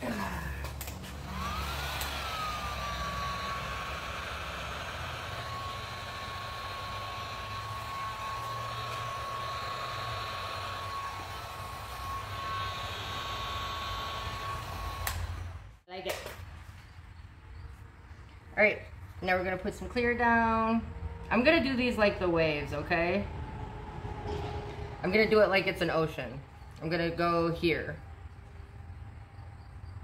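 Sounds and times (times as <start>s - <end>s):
heat gun motor whine: 0.8s - 15.8s.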